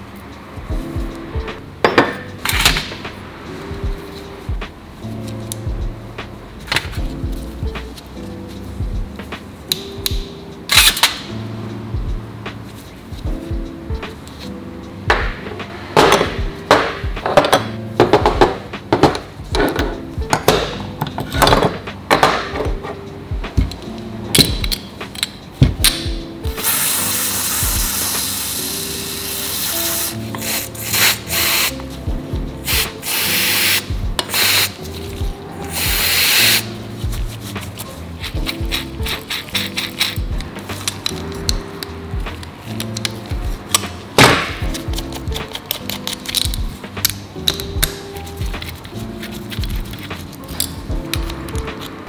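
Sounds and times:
background music: 0:00.0 - 0:52.0
metal bicycle parts clinking: 0:23.6 - 0:26.1, 0:37.5 - 0:43.9, 0:44.7 - 0:51.9
aerosol spray hissing: 0:26.6 - 0:31.7, 0:32.7 - 0:34.8, 0:35.7 - 0:36.7.

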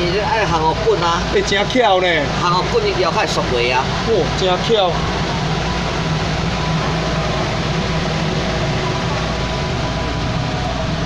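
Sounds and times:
exhaust fan rushing: 0:00.0 - 0:11.0
machine hum: 0:00.0 - 0:11.0.

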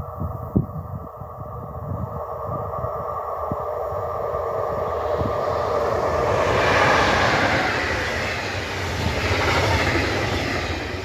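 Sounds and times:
train passing at speed: 0:00.0 - 0:11.0.

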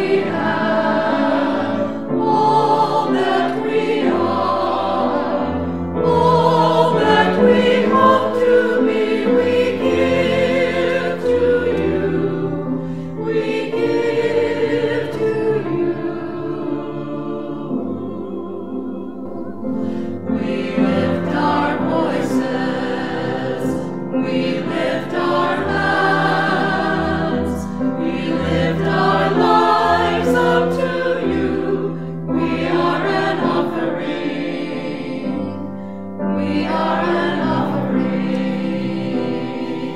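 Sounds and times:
choir singing sustained notes: 0:00.0 - 0:39.9.

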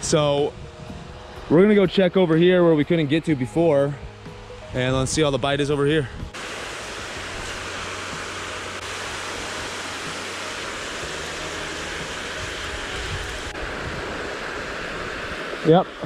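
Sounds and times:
water pouring over a dam: 0:06.4 - 0:16.0.

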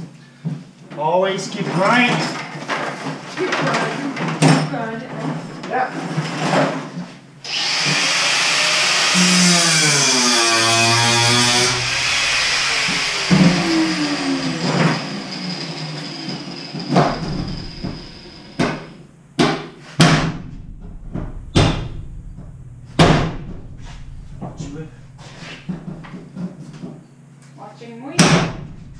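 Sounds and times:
angle grinder cutting steel: 0:07.5 - 0:18.6
sharp metal knocks: 0:16.9 - 0:26.4, 0:28.2 - 0:28.9.

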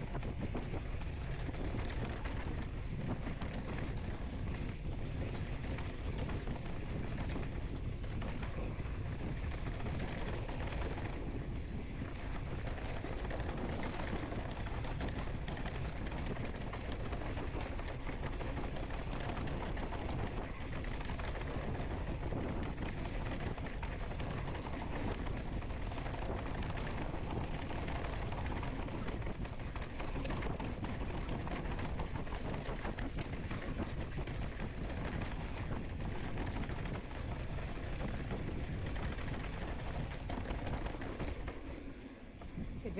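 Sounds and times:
bike rattling over bumps: 0:00.0 - 0:42.9
bike tyres rolling on dirt: 0:00.0 - 0:42.9
wind on microphone: 0:00.0 - 0:42.9.

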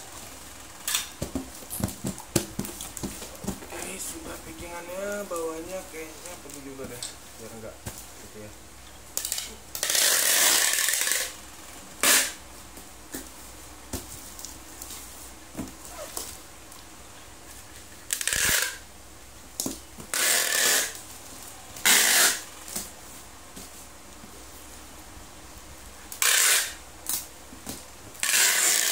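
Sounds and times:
packing tape pulled off dispenser: 0:00.8 - 0:01.2, 0:09.2 - 0:11.4, 0:12.0 - 0:12.4, 0:18.0 - 0:18.8, 0:20.1 - 0:21.1, 0:21.8 - 0:22.9, 0:26.1 - 0:27.3, 0:28.2 - 0:28.9.

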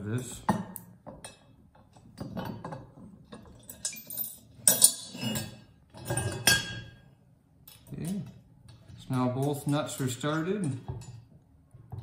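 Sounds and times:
metal hardware clinking: 0:00.8 - 0:06.9.

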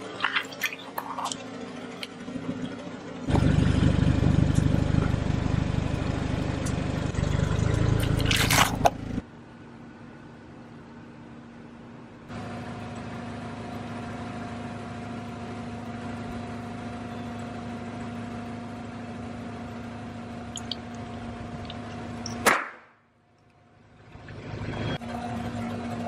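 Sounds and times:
car engine idling: 0:00.0 - 0:09.2, 0:12.3 - 0:22.4
loud sharp crack: 0:22.4 - 0:23.0.

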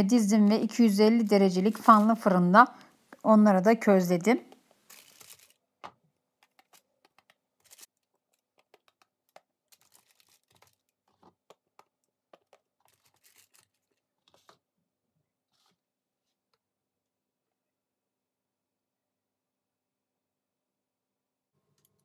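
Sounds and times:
parchment paper crinkling: 0:01.2 - 0:02.3, 0:04.8 - 0:05.6, 0:06.4 - 0:14.6.

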